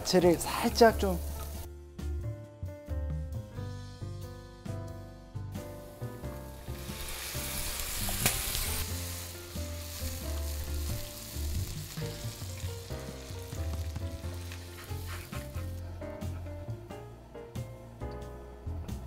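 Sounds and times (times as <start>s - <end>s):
vegetables sizzling in a frying pan: 0.3s - 1.7s, 6.4s - 15.1s.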